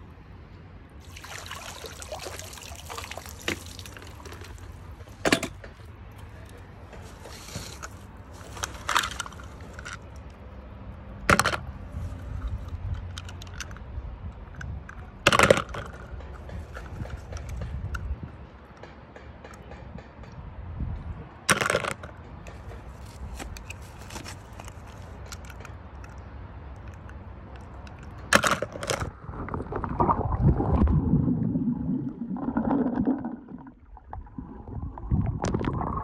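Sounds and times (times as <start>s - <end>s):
water splashing and dripping: 1.0s - 5.2s.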